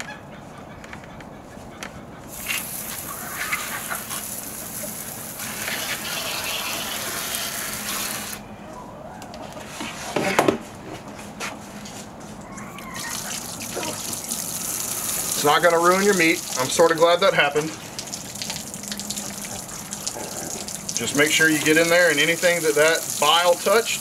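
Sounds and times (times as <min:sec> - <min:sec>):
running water: 0:02.3 - 0:08.4, 0:12.7 - 0:24.0.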